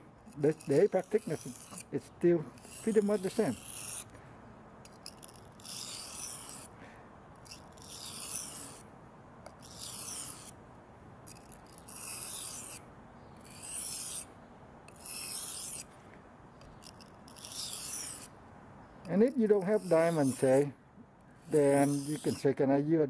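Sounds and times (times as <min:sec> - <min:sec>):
knife grinding on sharpening stone: 0:00.2 - 0:04.1, 0:04.8 - 0:06.7, 0:07.4 - 0:08.8, 0:09.5 - 0:10.6, 0:11.3 - 0:12.8, 0:13.4 - 0:14.3, 0:14.9 - 0:15.9, 0:16.6 - 0:18.3, 0:19.0 - 0:20.6, 0:21.4 - 0:22.4.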